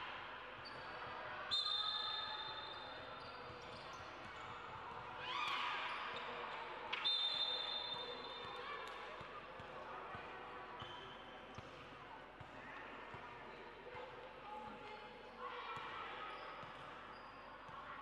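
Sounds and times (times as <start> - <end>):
sneaker squeaks: 0.6 - 9.0, 10.8 - 11.7, 16.3 - 17.7.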